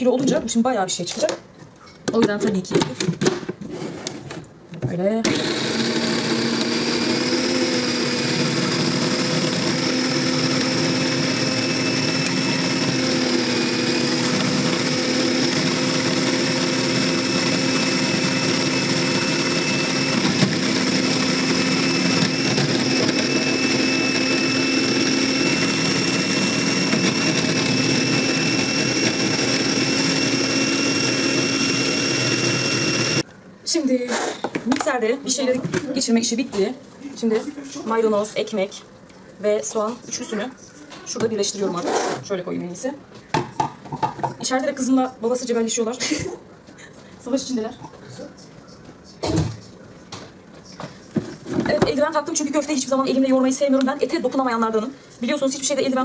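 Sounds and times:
food processor motor running: 5.2 - 33.2.

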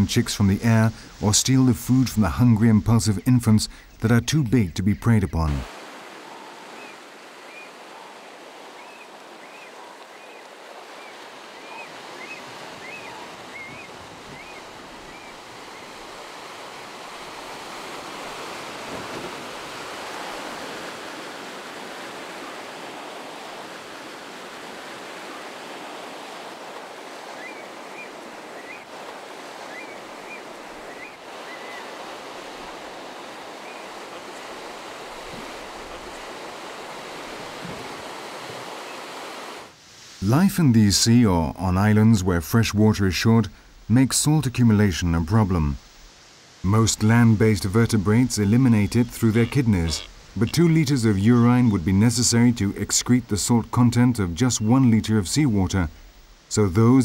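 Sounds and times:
surf breaking over rocks: 5.4 - 40.5.

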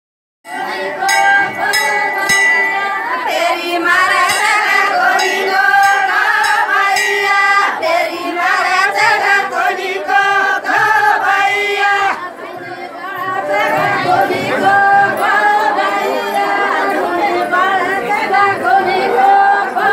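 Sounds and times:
women singing in unison: 0.5 - 19.9.

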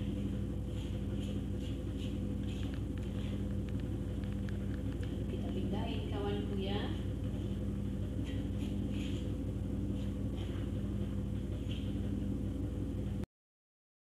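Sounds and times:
low hum: 0.0 - 13.3.

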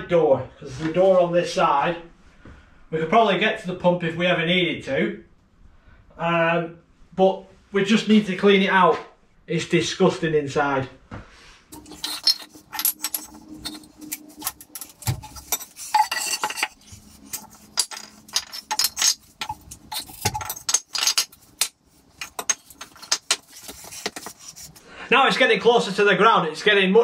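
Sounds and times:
wood blocks clinking: 11.8 - 24.7.

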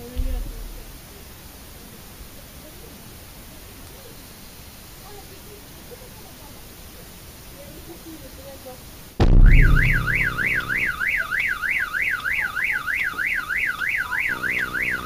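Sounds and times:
low droning tone: 9.2 - 11.0
car alarm wailing: 9.4 - 15.0.

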